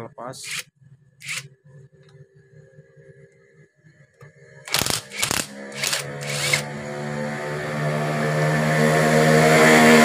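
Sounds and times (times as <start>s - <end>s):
impact wrench whirring: 0.4s - 0.6s, 1.2s - 1.4s, 4.7s - 6.7s
impact wrench hammering: 1.2s - 1.4s, 4.7s - 6.6s.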